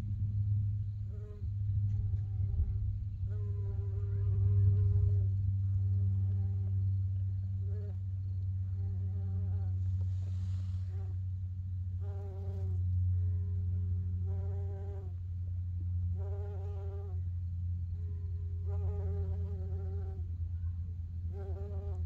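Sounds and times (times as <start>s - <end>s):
steady low hum: 0.0s - 22.0s
bumblebee buzzing: 3.2s - 6.7s, 12.0s - 12.8s, 14.2s - 15.2s, 16.2s - 17.2s, 18.0s - 20.2s, 21.3s - 22.0s.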